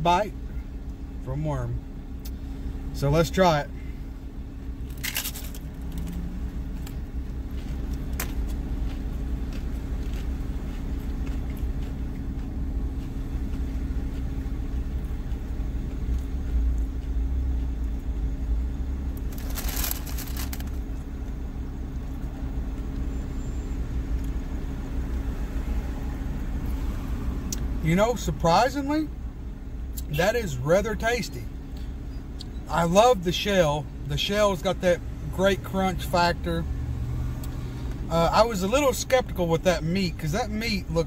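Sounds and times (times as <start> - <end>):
car engine idling: 0.0 - 26.8, 27.5 - 36.6, 37.8 - 41.0
crunch of biting taco shell: 19.2 - 20.8.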